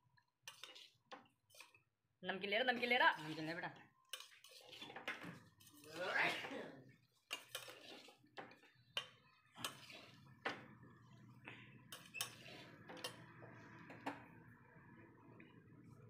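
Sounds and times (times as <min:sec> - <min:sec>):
metal spoon scraping steel pot: 0:00.4 - 0:01.8, 0:02.7 - 0:06.5, 0:07.2 - 0:10.4, 0:11.9 - 0:13.3.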